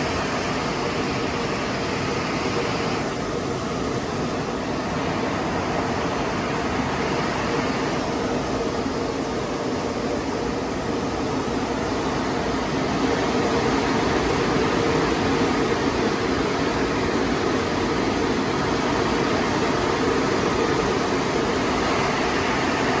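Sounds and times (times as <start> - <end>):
air-dryer blowers running: 0.0 - 23.0.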